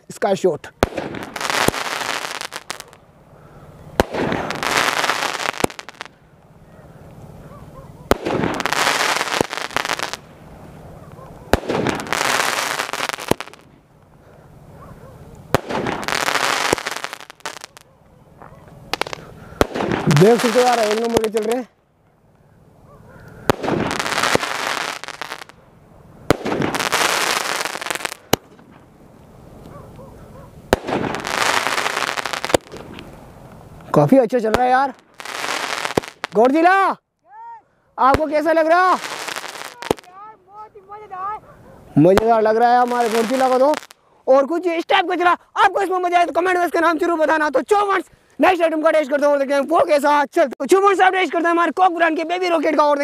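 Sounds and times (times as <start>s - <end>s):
firework crackling: 0.1s - 21.7s, 22.7s - 36.9s, 38.0s - 45.0s
firework bangs: 0.7s - 3.3s, 3.9s - 13.8s, 14.6s - 17.9s, 18.8s - 21.7s, 23.4s - 29.0s, 29.6s - 36.6s, 38.0s - 40.3s, 42.1s - 44.0s.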